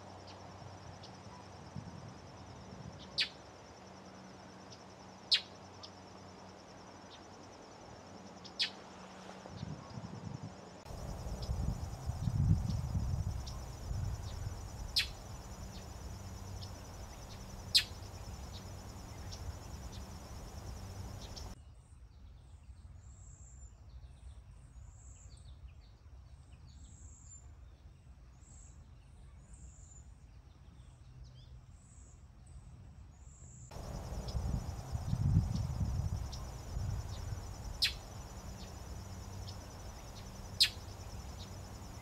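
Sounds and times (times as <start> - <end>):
insect trill: 0.0 - 21.6, 33.7 - 42.0
low background rumble: 10.8 - 21.6, 33.7 - 42.0.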